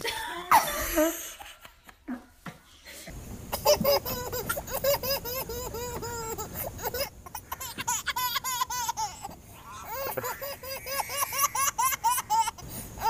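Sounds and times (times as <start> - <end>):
baby girl laughing: 3.5 - 12.7.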